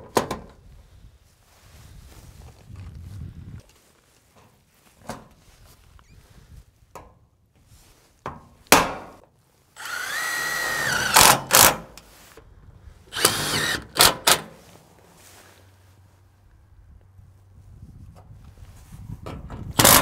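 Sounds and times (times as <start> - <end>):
drill motor whining: 9.8 - 11.7, 13.1 - 14.4.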